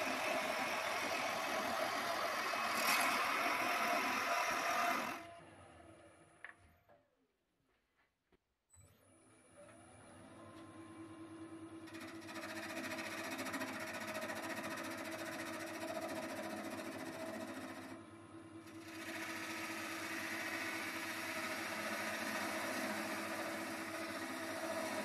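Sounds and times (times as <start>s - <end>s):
turning tool cutting hiss: 0.0s - 5.2s, 18.8s - 25.0s
wood lathe humming: 0.0s - 5.3s, 11.9s - 18.0s, 18.6s - 25.0s.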